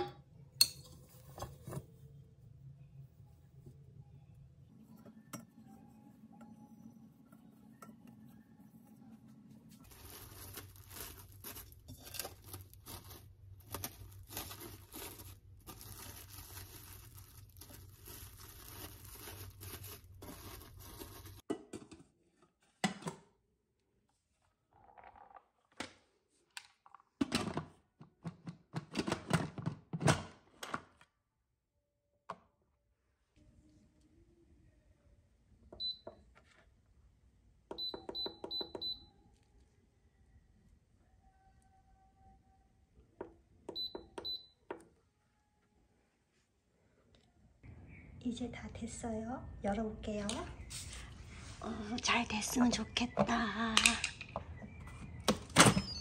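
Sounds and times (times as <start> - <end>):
cling wrap tearing and crinkling: 9.8 - 21.5.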